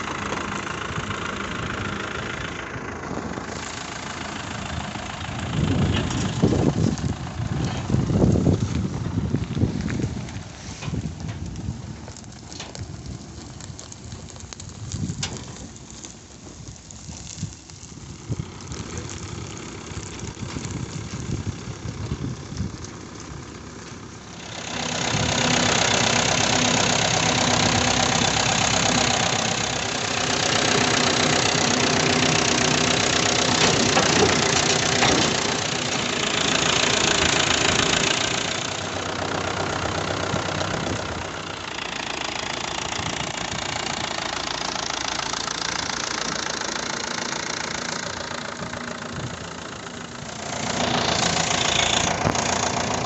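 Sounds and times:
tractor diesel engine running: 0:00.0 - 0:53.0
reaper rushing drone: 0:24.3 - 0:41.7.

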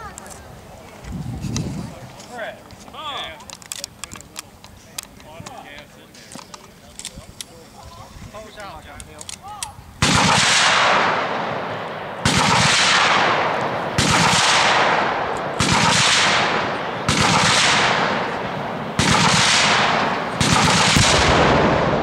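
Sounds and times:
machine guns firing in bursts: 0:10.0 - 0:11.6, 0:12.2 - 0:22.0.

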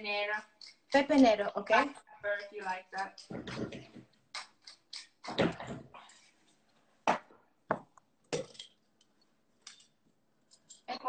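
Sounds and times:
pepper mill grinding: 0:02.4 - 0:03.7, 0:04.3 - 0:05.3
utensils clattering against a pot: 0:02.4 - 0:06.2, 0:08.4 - 0:08.8.

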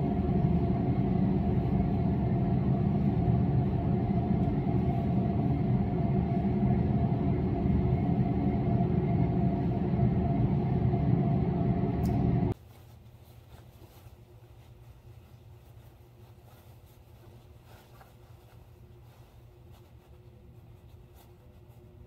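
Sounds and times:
low mechanical rumble with hum: 0:00.0 - 0:22.0.

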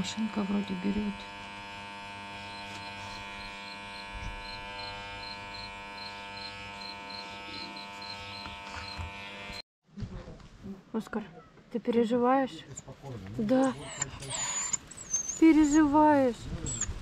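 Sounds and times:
electric pet clipper buzzing: 0:00.0 - 0:09.6.

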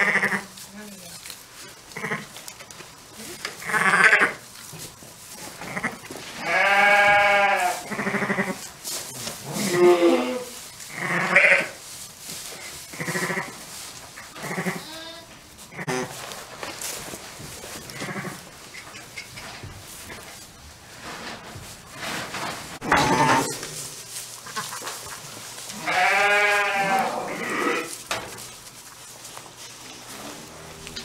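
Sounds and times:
sheep and lambs bleating: 0:00.0 - 0:00.5, 0:01.9 - 0:02.4, 0:03.6 - 0:04.4, 0:05.6 - 0:08.7, 0:09.4 - 0:11.8, 0:12.9 - 0:13.6, 0:14.3 - 0:16.2, 0:17.8 - 0:18.4, 0:22.9 - 0:23.7, 0:25.7 - 0:28.0.

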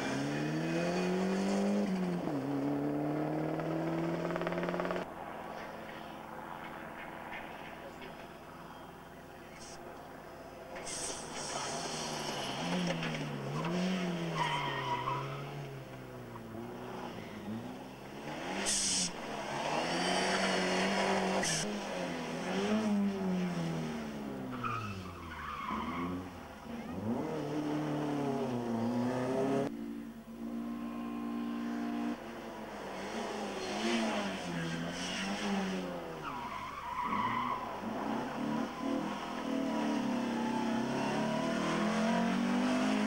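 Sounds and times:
rally cars revving past: 0:11.8 - 0:29.7, 0:30.4 - 0:43.0.

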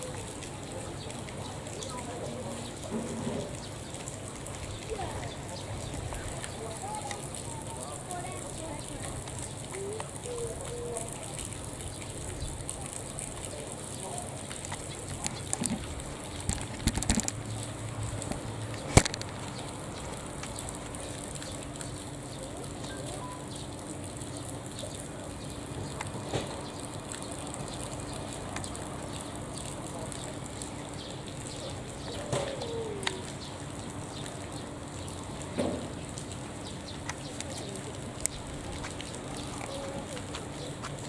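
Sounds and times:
outdoor background noise: 0:00.0 - 0:41.0
bird cooing: 0:09.7 - 0:11.2, 0:32.1 - 0:33.3.

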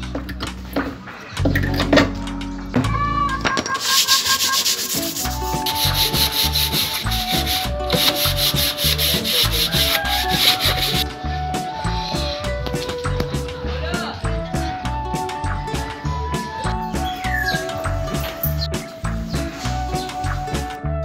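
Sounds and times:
sandpaper rubbing on wood: 0:03.8 - 0:11.0.

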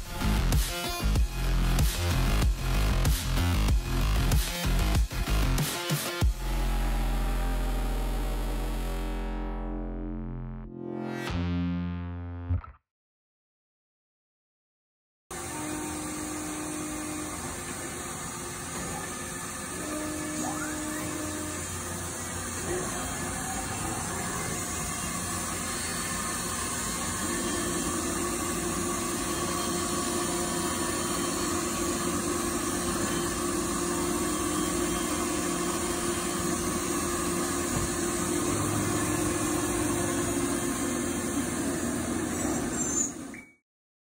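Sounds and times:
machine noise: 0:00.1 - 0:09.6, 0:15.3 - 0:43.6
steady hum: 0:15.4 - 0:42.7.

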